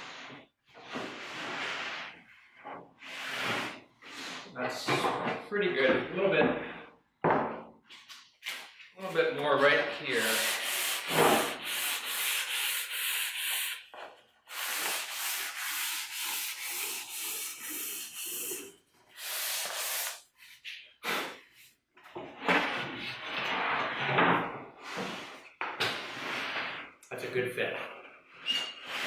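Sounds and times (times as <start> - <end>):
sanding sponge rubbing wood: 10.1 - 13.9, 14.5 - 20.7.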